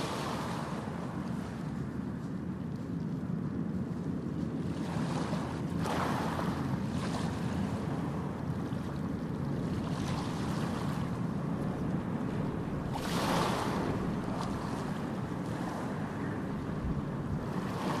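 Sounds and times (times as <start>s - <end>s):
wind buffeting microphone: 0.0s - 18.0s
water sloshing: 4.4s - 18.0s.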